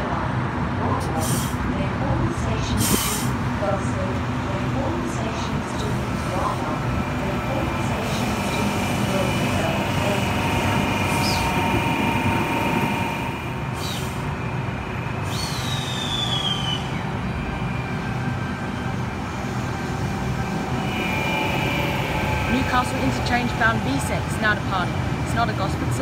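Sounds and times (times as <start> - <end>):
electric train rumble and hum: 0.0 - 26.0
high squeals: 15.0 - 17.3, 20.3 - 23.9.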